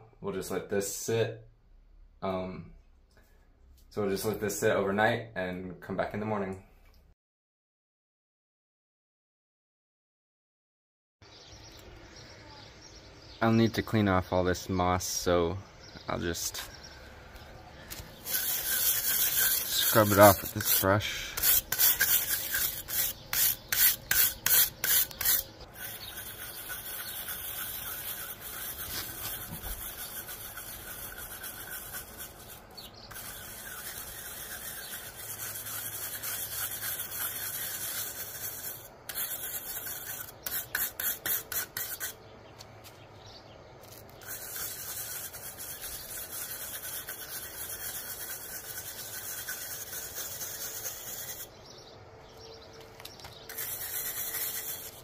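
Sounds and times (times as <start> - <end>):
stiff brush scrubbing rough wall: 17.8 - 42.2, 43.8 - 51.6, 53.3 - 55.0.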